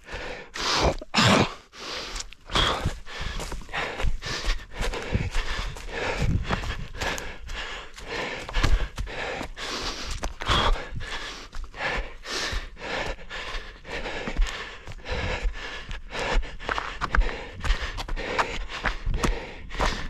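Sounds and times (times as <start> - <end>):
heavy rapid breathing: 0.0 - 20.0
footfalls on forest ground: 2.1 - 10.9.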